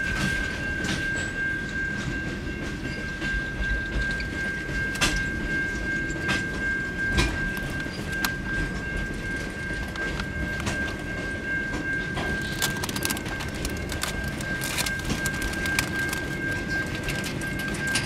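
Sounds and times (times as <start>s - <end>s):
wheels rumbling on rail: 0.0s - 18.0s
sharp clicks and knocks: 12.2s - 18.0s.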